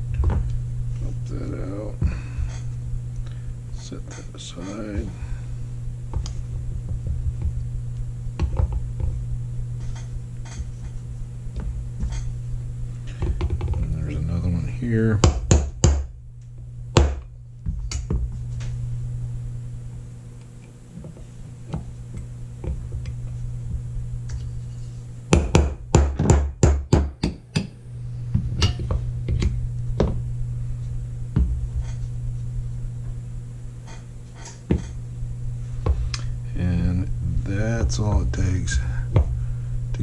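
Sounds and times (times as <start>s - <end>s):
steady low hum: 0.0s - 40.0s
hammer tapping metal punch: 28.6s - 30.2s.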